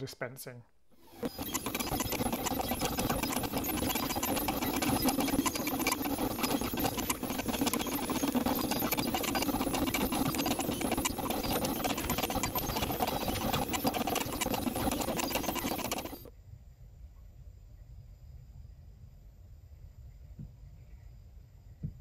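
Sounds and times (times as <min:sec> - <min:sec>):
steady machine hum: 0:00.9 - 0:16.3
machine motors clattering ticks: 0:01.0 - 0:16.3.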